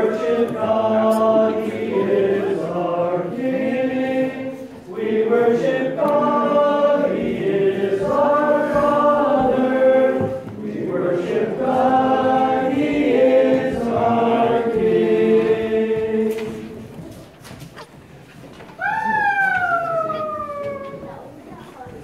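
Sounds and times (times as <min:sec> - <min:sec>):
unaccompanied voices chanting: 0:00.0 - 0:17.0.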